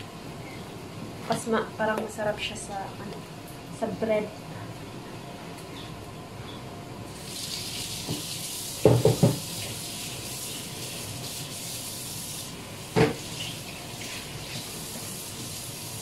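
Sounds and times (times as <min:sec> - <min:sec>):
kitchen tap running: 0:07.1 - 0:16.0
knock: 0:08.8 - 0:09.4.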